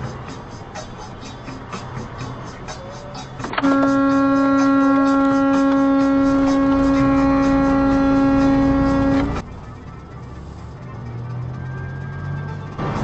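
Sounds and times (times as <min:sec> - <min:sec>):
low road rumble: 0:00.0 - 0:13.0
truck horn blast: 0:03.5 - 0:09.4.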